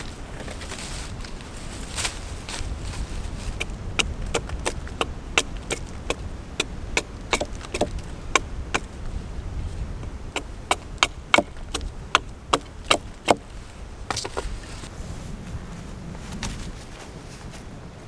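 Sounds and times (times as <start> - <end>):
hatchet knocking wooden stake: 3.6 - 8.9, 10.4 - 13.4.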